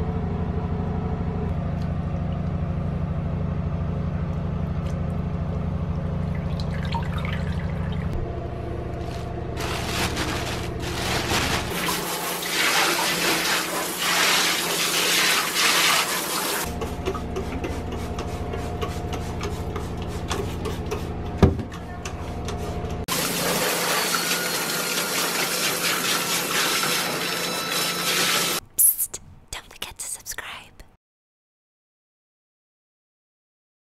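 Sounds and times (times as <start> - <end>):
steady low hum: 0.0 - 11.8.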